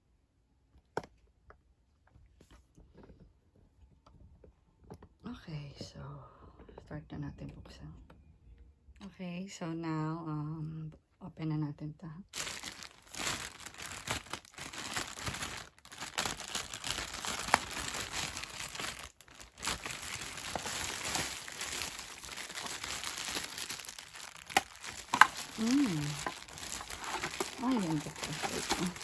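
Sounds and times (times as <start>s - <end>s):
plastic bag crinkling: 12.3s - 29.0s.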